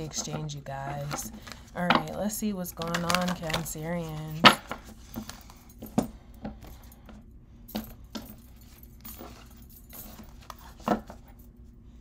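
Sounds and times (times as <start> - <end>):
cards being shuffled: 0.0 - 5.6
bangles jangling: 7.7 - 11.4.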